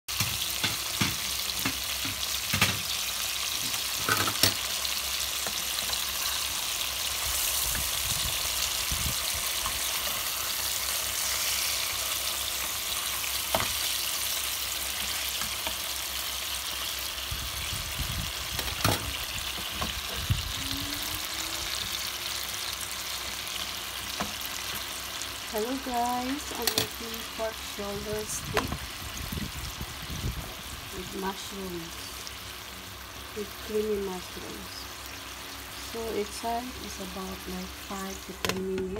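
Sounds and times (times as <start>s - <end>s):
meat sizzling in oil: 0.1s - 38.5s
metal tongs clicking on pan: 26.6s - 27.0s.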